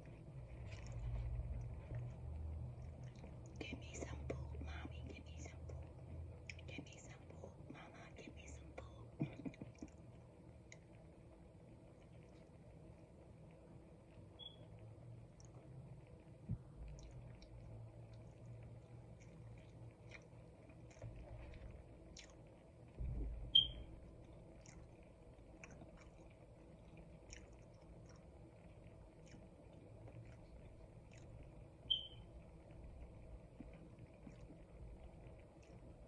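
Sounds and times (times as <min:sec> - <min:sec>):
chewing soft food: 0:00.0 - 0:08.1, 0:08.8 - 0:14.2, 0:15.2 - 0:36.0
short high-pitched chirps: 0:14.4 - 0:14.6, 0:23.5 - 0:23.8, 0:31.9 - 0:32.2
wet mouth clicks: 0:19.2 - 0:22.5.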